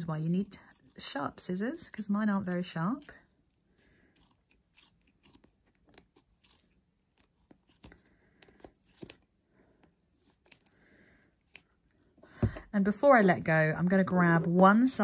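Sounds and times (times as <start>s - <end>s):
scissors snipping yarn: 4.1s - 9.3s, 10.2s - 10.7s, 11.4s - 11.8s.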